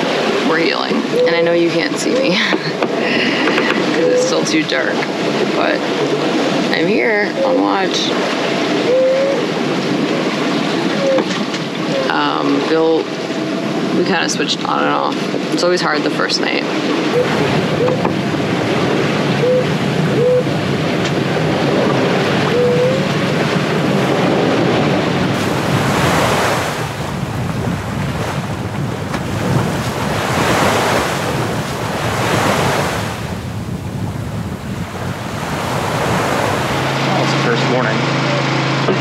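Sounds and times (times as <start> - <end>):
water rushing along hull: 0.0 - 39.0
wind buffeting microphone: 0.0 - 39.0
bow pounding into waves: 25.3 - 33.6.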